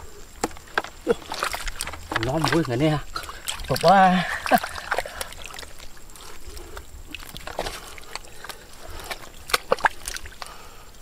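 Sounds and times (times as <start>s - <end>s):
small wet clicks: 0.4s - 10.6s
wet mud squelching: 0.4s - 10.7s
sharp wet slaps: 7.1s - 10.5s.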